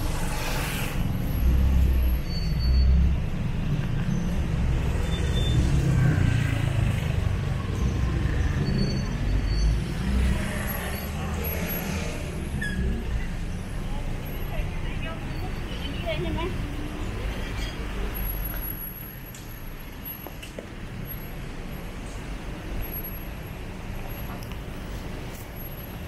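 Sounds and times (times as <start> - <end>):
passing cars rumbling: 0.0 - 26.0.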